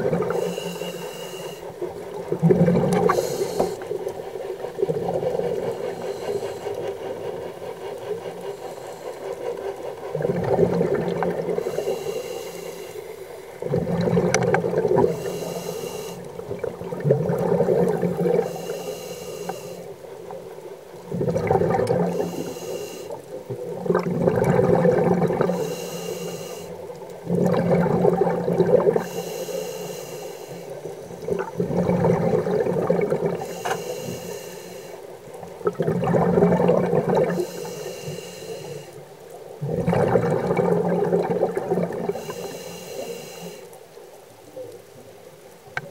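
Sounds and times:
bubbling exhale: 0.0s - 4.0s, 10.1s - 19.9s, 21.1s - 35.0s, 35.6s - 39.0s, 39.6s - 43.7s
regulator hissing inhale: 0.2s - 2.1s, 3.0s - 7.3s, 8.0s - 10.2s, 11.5s - 13.6s, 14.9s - 16.4s, 18.1s - 20.0s, 22.1s - 23.4s, 25.4s - 27.0s, 28.9s - 31.2s, 33.4s - 35.2s, 37.3s - 39.1s, 42.1s - 43.8s.

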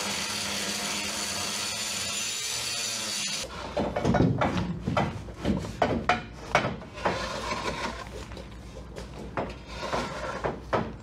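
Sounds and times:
metal knocks clanks and scrapes: 3.4s - 8.3s, 9.0s - 11.0s.

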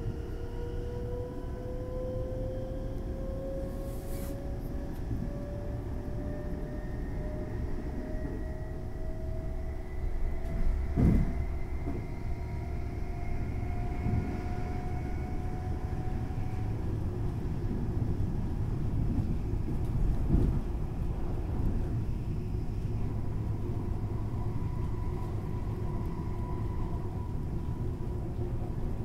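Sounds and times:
train rumble: 0.0s - 29.0s.

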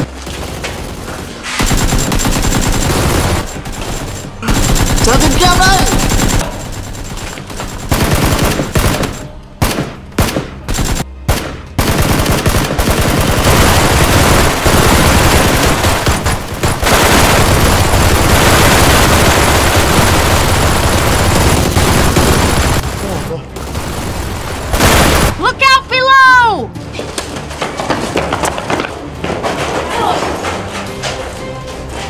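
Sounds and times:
machine-gun fire: 0.0s - 25.4s.

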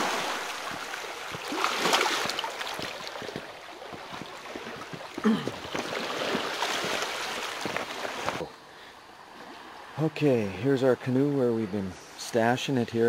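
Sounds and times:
small waves lapping on beach: 0.0s - 8.5s
footsteps on stones: 0.6s - 8.4s.

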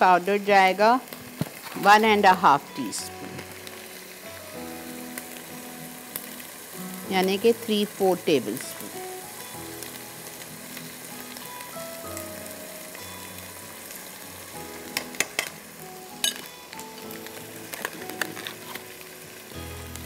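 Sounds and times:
potatoes sizzling in oil: 0.0s - 20.0s.

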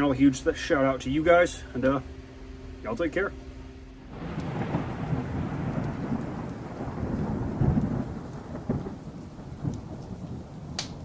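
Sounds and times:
rain falling: 4.1s - 11.0s
rumbling thunder: 4.1s - 11.0s
sharp thunder crack: 4.1s - 11.0s.

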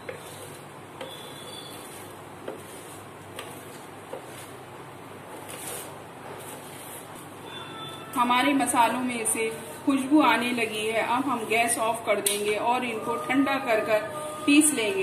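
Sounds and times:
spatula scraping spices in pan: 0.0s - 4.6s, 5.2s - 7.4s.

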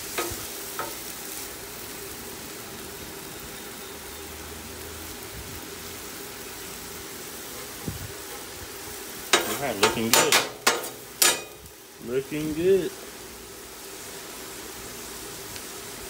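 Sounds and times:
beef sizzling on griddle: 0.0s - 16.0s
metal spatula clicking on griddle: 0.1s - 1.0s, 9.3s - 11.6s.

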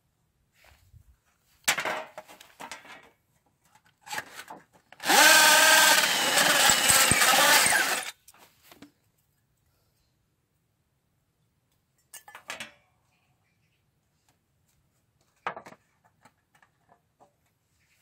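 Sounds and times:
drill grinding metal: 5.0s - 8.2s.

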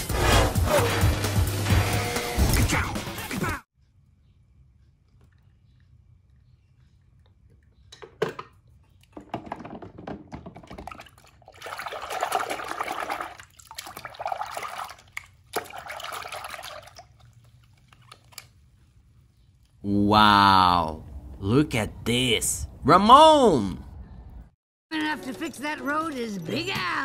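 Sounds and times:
water splashing in plastic tub: 9.1s - 18.5s.

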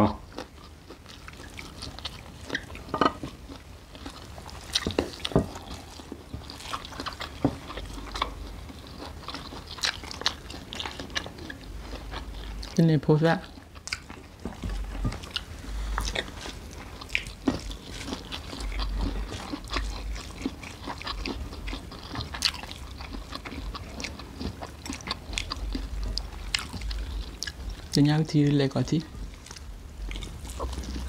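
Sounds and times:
chewing and biting: 0.3s - 12.8s, 13.4s - 28.0s, 29.1s - 31.0s.

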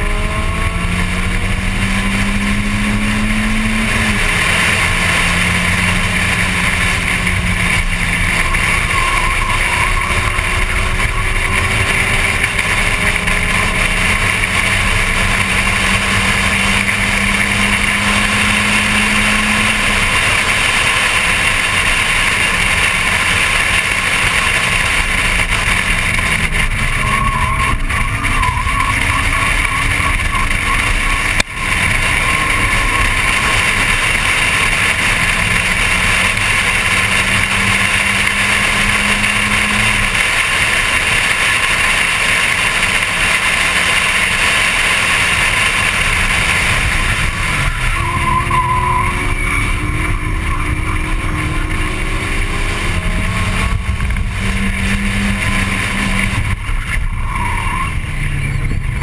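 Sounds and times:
car engine pulling hard: 0.0s - 59.0s.

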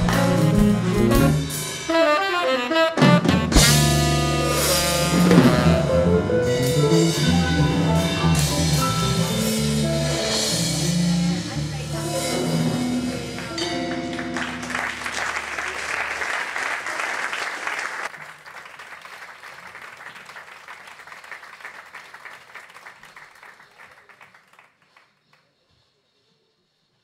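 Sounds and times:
jazz quintet playing: 0.0s - 15.1s
audience applause: 13.4s - 25.1s.

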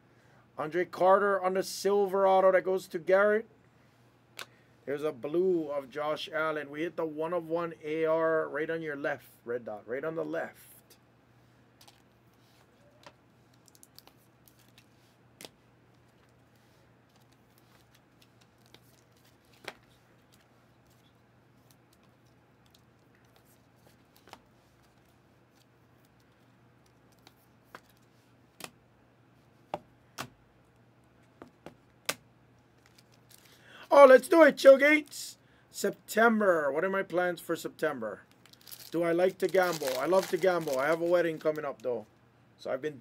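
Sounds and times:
faint steady hum: 0.0s - 43.0s
card packs clicking and crackling: 32.8s - 33.6s, 38.3s - 41.6s.

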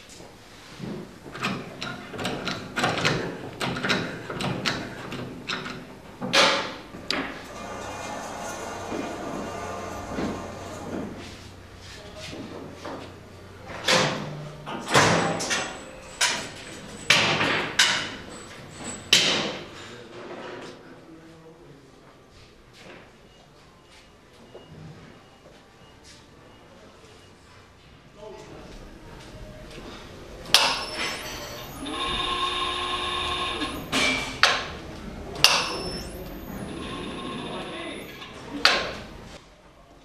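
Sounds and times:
electric motor whining: 31.2s - 33.9s.

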